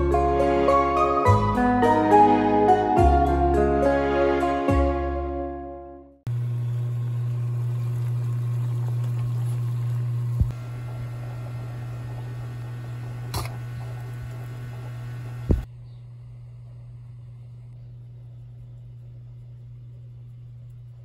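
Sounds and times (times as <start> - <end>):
low electrical hum: 6.3 - 21.0.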